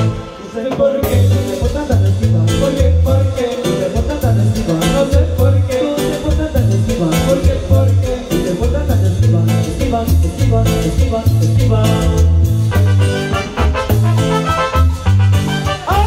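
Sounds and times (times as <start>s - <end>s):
congas: 0.0s - 16.0s
drum kit beat: 0.0s - 16.0s
live band playing latin dance music: 0.0s - 16.0s
bouncing bass line: 1.0s - 16.0s.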